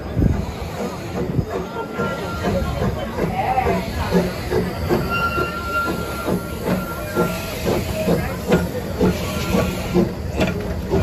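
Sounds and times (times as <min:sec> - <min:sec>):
steam locomotive chuffing: 0:00.0 - 0:11.0
high squeal: 0:04.9 - 0:08.1.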